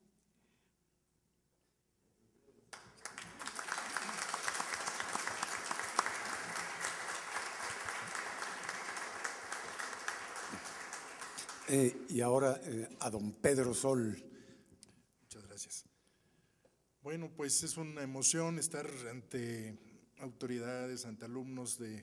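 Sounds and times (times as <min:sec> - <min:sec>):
audience applauding: 0:02.7 - 0:12.4.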